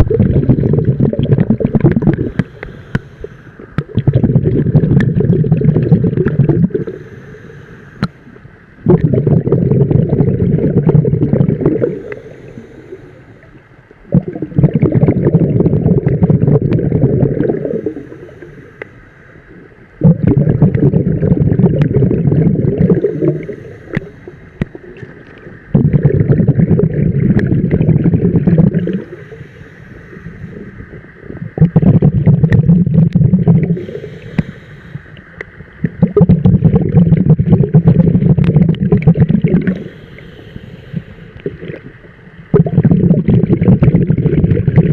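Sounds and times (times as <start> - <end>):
diver exhaling bubbles underwater: 0.0 - 7.1, 8.8 - 18.6, 19.9 - 29.4, 30.2 - 34.5, 35.8 - 40.0, 41.4 - 44.9
breathing through regulator: 1.0 - 3.8, 5.8 - 8.3, 11.7 - 13.6, 17.0 - 20.4, 22.0 - 24.8, 27.4 - 31.1, 33.6 - 35.4, 39.6 - 41.5.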